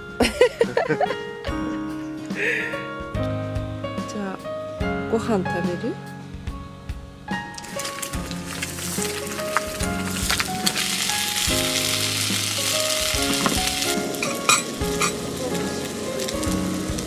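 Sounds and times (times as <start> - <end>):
background music: 0.0 - 17.0
food sizzling in a hot pan: 7.4 - 17.0.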